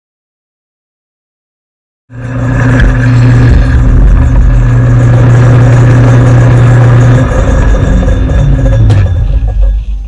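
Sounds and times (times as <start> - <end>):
lathe motor humming: 2.1 - 10.0.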